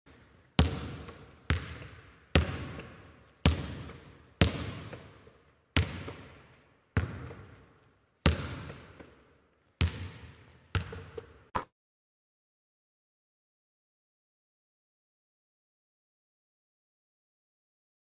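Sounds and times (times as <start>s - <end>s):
basketball bouncing on hardwood floor: 0.6s - 7.6s, 8.2s - 9.2s, 9.8s - 11.4s.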